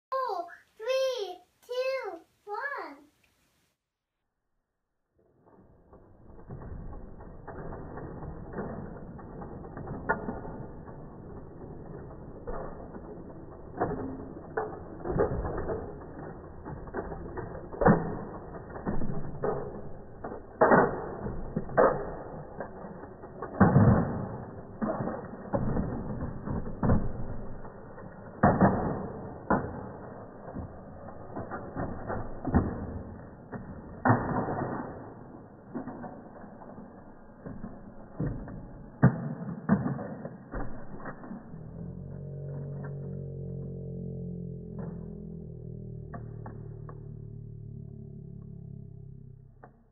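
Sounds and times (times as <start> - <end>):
plastic wheels grinding on wood: 5.6 - 38.2
plastic toy trucks knocking: 5.6 - 45.3.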